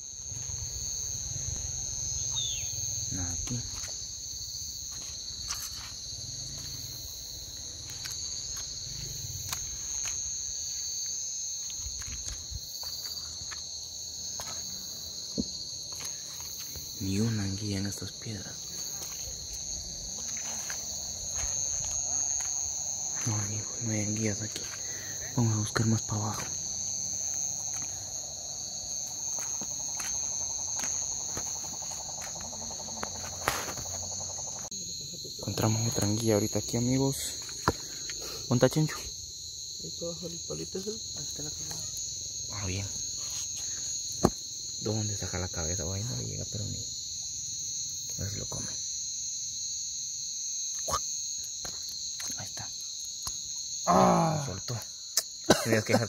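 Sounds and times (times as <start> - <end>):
crickets chirping: 0.0 - 56.0
night insects trilling: 0.0 - 56.0
footsteps on river stones: 29.2 - 34.0.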